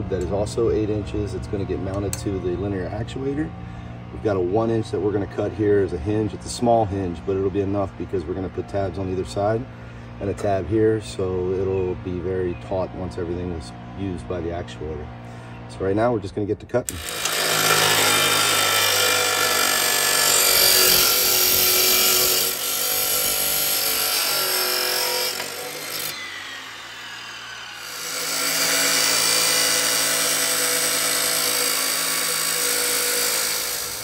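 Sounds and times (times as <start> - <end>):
chop saw cutting steel: 16.9 - 34.0.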